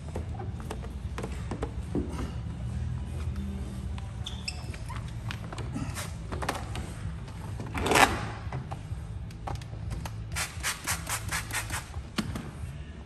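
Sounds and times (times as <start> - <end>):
steady low hum: 0.0 - 4.2
hissing rub of film: 10.3 - 12.0.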